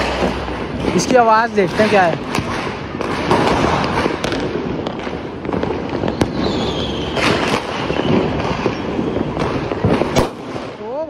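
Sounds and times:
firecracker bangs: 0.0 - 11.0
firecracker rushing hiss: 2.2 - 10.7.

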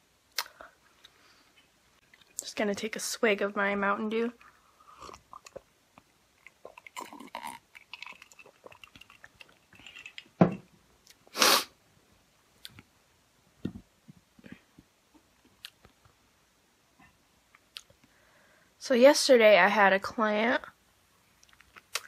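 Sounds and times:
wet chewing: 4.4 - 9.7
person swallowing soda: 6.4 - 9.6.

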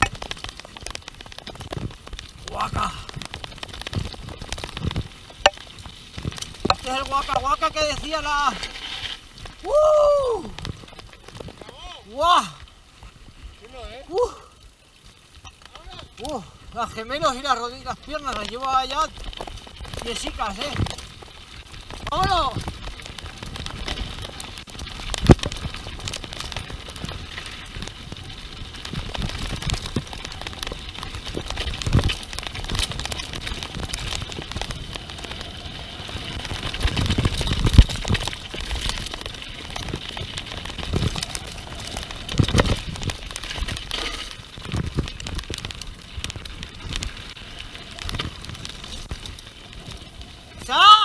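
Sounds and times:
bike knocking over bumps: 0.0 - 7.8
tyres crunching over dirt: 0.0 - 14.1, 14.8 - 50.8.

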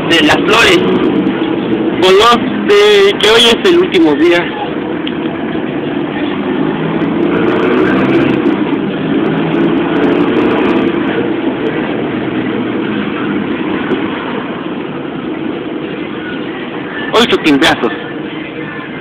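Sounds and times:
bus engine running under load: 0.0 - 19.0
road noise: 0.0 - 19.0.

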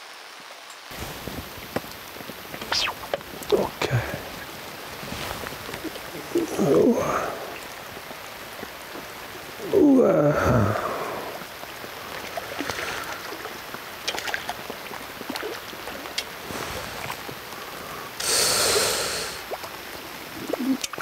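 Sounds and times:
rain falling: 0.0 - 21.0
short hiss: 2.6 - 3.2, 16.5 - 19.4.

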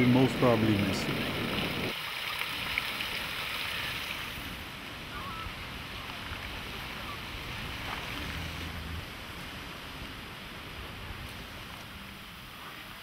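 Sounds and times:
wind on microphone: 0.0 - 2.0.

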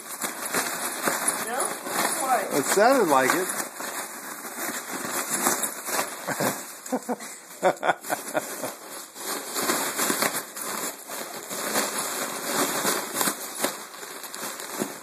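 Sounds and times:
foil balloon crinkling: 0.0 - 15.0.

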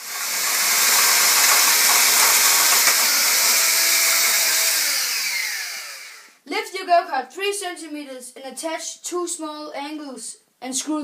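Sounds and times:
cordless drill drilling metal: 0.0 - 6.4.

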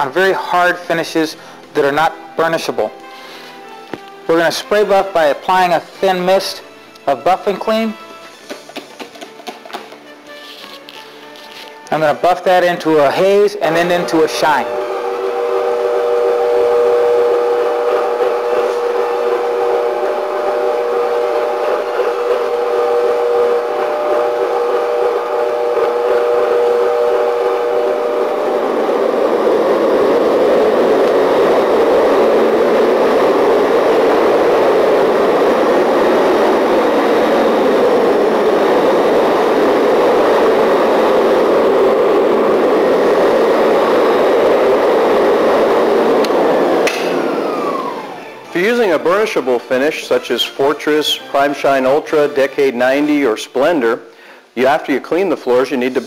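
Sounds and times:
floor burnisher whirring: 0.0 - 53.9
floor buffing machine humming: 13.1 - 53.2.

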